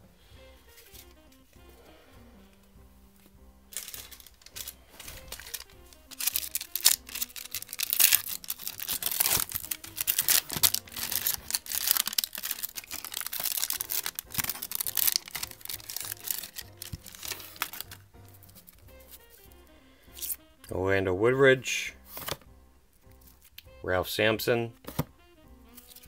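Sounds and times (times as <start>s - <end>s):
faint background music: 0.0s - 26.0s
foil wrapper crinkling and tearing: 3.7s - 19.5s, 20.1s - 20.4s, 25.7s - 26.0s.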